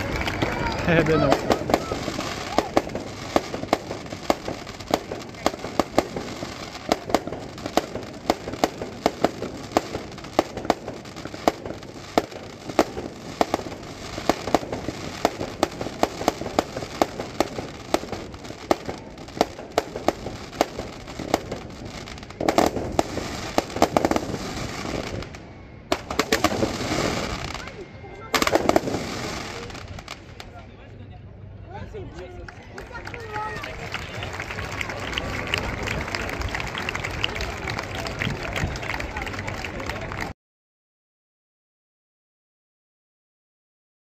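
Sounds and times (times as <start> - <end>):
fireworks bangs and crackles: 0.0 - 30.7.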